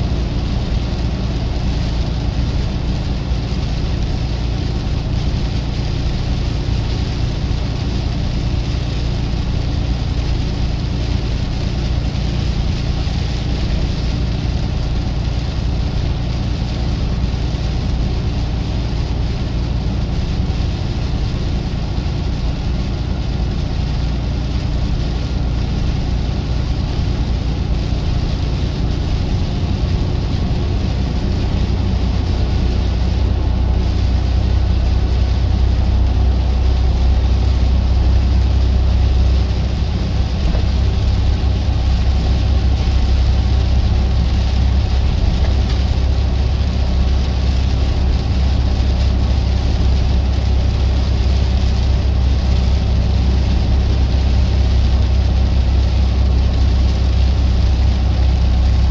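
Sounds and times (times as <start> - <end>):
road noise hiss: 0.0 - 58.9
truck engine drone: 0.0 - 58.9.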